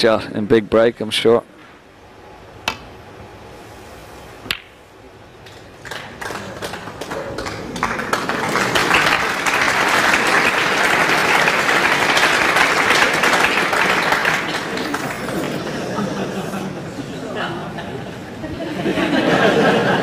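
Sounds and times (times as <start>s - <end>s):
snooker balls clicking: 4.4s - 4.8s
audience applause: 5.5s - 16.9s.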